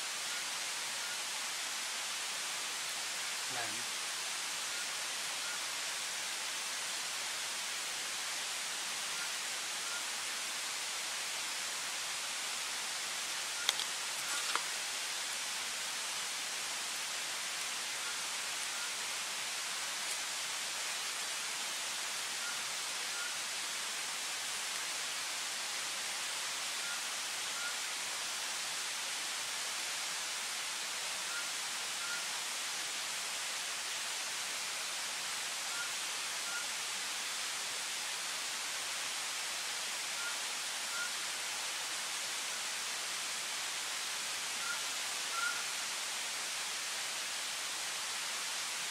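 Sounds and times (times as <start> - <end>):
night forest hiss: 0.0 - 48.9
faint high chirps: 13.5 - 14.6, 40.2 - 41.2, 44.6 - 45.7.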